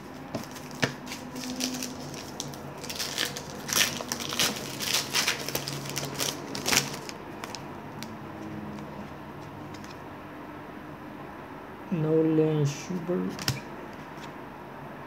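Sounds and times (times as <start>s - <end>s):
wrapper crinkling and tearing: 0.1s - 8.1s.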